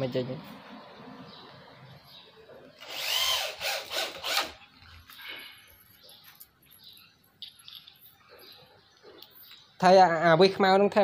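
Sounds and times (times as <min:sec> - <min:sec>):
electric drill motor whine: 0:02.8 - 0:04.6.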